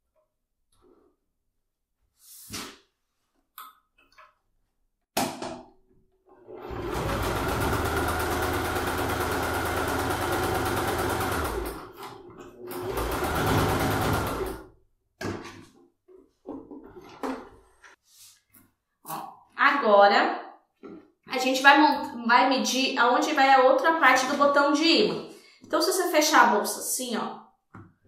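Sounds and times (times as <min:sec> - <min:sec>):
sewing machine stitching fabric: 0:06.3 - 0:14.7.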